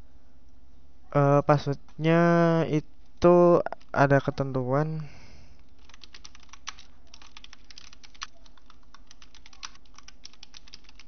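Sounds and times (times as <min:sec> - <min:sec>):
faint steady hum: 0:00.0 - 0:11.0
keyboard typing: 0:05.7 - 0:11.0.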